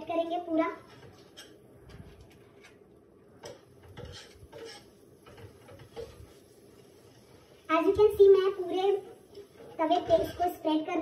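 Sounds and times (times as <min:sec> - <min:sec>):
spatula scraping and tapping pan: 0:00.8 - 0:02.8, 0:03.4 - 0:10.6.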